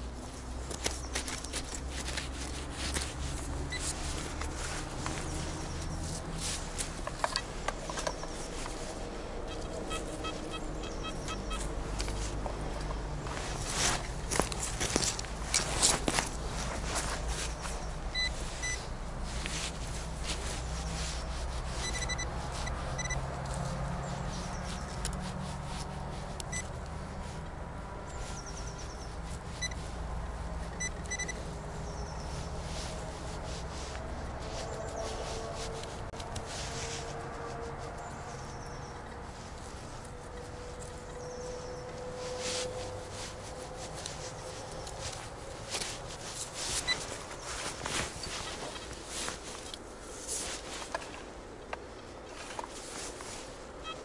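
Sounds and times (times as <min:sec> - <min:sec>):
metal detector beeps: 0:09.5 - 0:11.7, 0:18.1 - 0:18.8, 0:21.8 - 0:22.3, 0:23.0 - 0:23.2, 0:30.8 - 0:31.4, 0:53.8 - 0:54.0.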